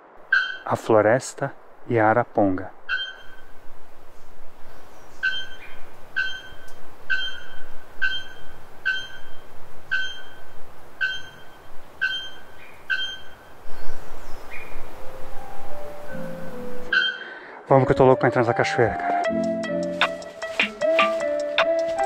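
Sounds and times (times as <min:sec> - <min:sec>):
forest background noise: 0:00.0 - 0:22.0
bellbird ringing call: 0:00.3 - 0:00.7, 0:02.9 - 0:03.5, 0:05.2 - 0:13.5, 0:16.9 - 0:17.3.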